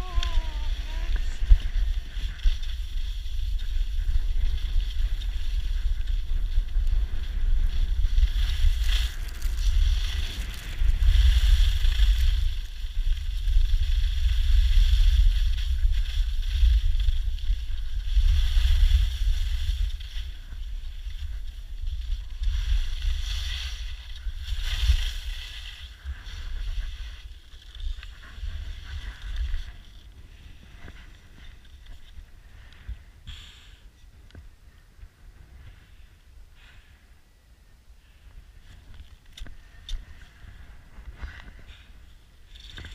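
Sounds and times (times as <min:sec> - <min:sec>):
skis sliding on snow: 0:00.0 - 0:33.8.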